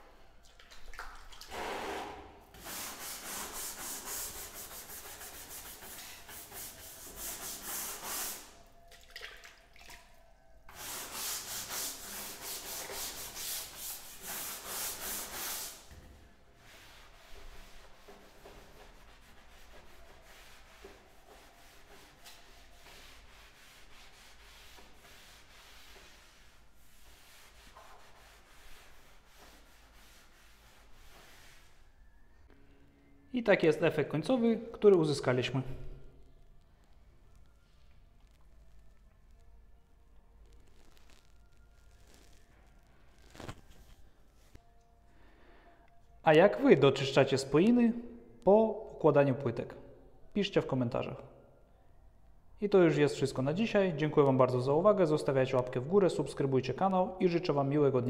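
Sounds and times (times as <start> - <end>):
cloth wiping tiles: 2.5 - 8.8, 10.7 - 15.9, 16.6 - 32.2, 43.2 - 44.6.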